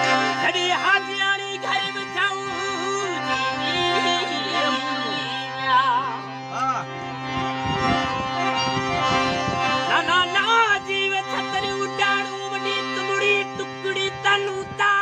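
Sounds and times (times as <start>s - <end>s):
harmonium chords: 0.0s - 15.0s
man singing folk song: 0.4s - 5.8s.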